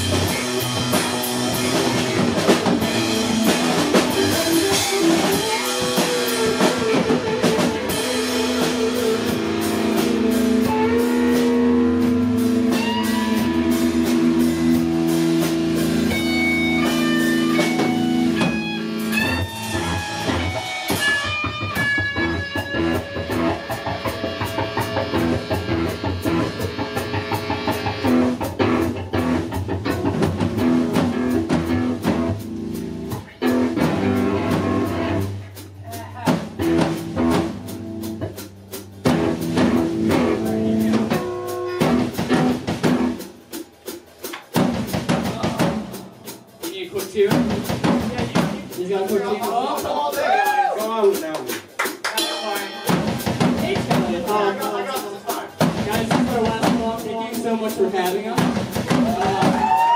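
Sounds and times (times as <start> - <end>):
electric guitars: 0.0 - 46.4
drum kit: 0.0 - 59.9.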